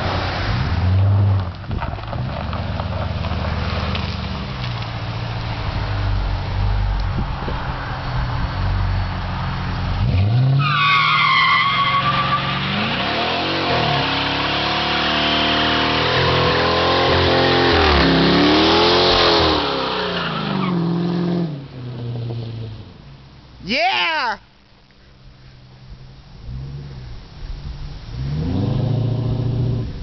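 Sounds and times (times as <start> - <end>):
car engine idling and revving: 0.0 - 23.6, 24.7 - 30.0
tyres squealing: 10.6 - 13.2.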